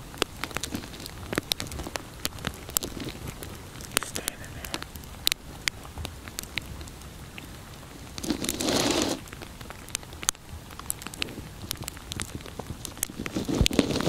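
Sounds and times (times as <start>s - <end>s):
small twig snaps: 0.2s - 6.7s.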